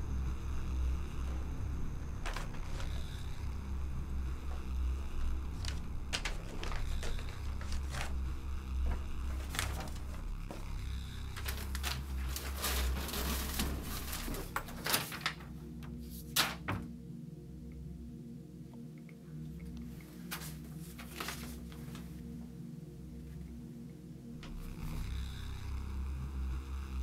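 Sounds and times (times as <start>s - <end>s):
heavy low rumble: 0.0s - 15.5s, 24.3s - 27.0s
low steady drone: 0.0s - 27.0s.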